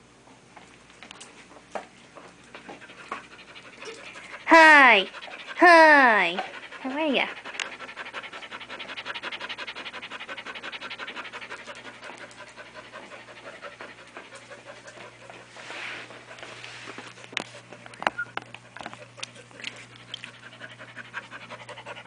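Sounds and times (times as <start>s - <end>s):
dog panting rapidly: 2.1s - 22.0s.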